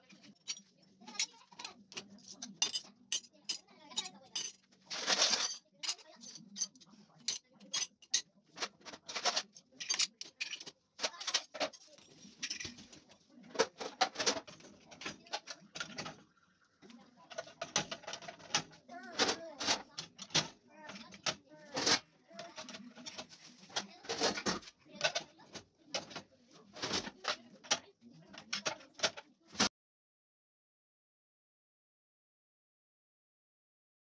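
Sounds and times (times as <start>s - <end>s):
cutlery and glassware clinking: 0.1s - 29.7s.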